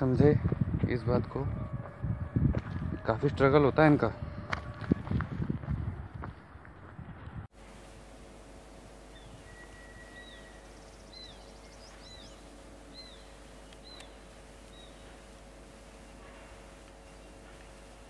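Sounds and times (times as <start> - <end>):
faint steady hum: 7.5 - 18.0
bird calling: 9.1 - 15.3.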